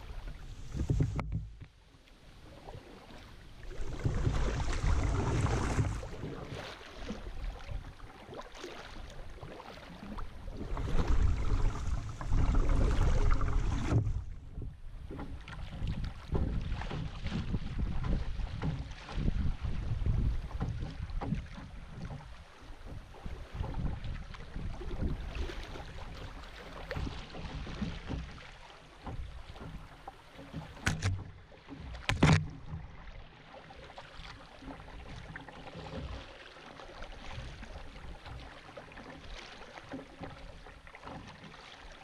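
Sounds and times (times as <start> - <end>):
wind rumbling on microphone: 0.0 - 1.7, 3.6 - 8.0, 10.0 - 26.2
water rushing and splashing: 0.0 - 42.0.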